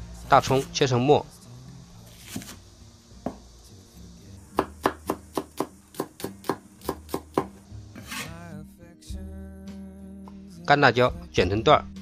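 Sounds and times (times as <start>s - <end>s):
cleaver chopping on wooden board: 2.2s - 2.6s, 3.2s - 3.4s, 4.6s - 8.3s.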